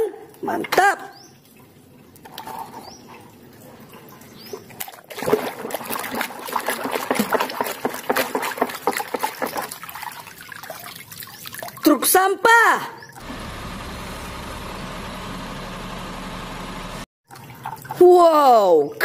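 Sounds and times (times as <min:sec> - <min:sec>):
water sloshing in plastic basin: 0:02.2 - 0:11.9.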